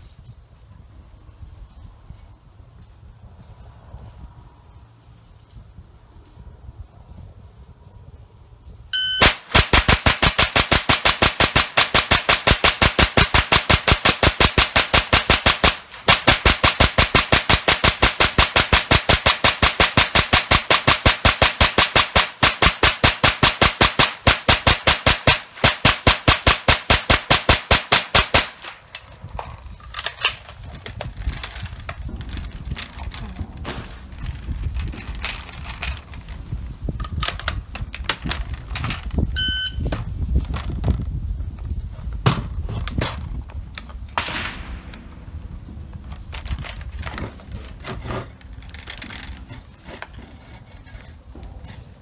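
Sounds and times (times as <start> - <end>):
rifle shots in rapid fire: 9.2 - 28.6
sharp crack: 9.2 - 28.8, 44.0 - 47.8
rifle metallic clicks and knocks: 28.5 - 36.4, 42.8 - 51.7.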